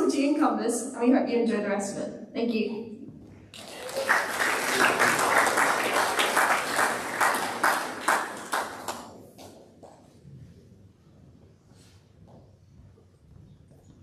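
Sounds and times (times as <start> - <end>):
audience applauding: 3.6 - 9.5.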